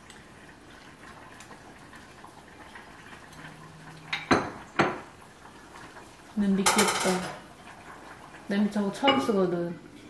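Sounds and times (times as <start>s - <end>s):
dishware clink: 6.6s - 7.3s
utensils clinking: 6.6s - 7.4s.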